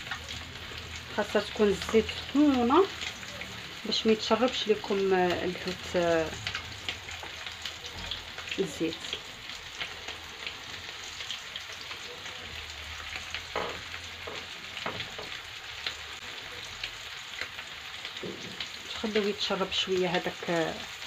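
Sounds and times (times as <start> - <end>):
fish frying in hot oil: 0.0 - 21.0.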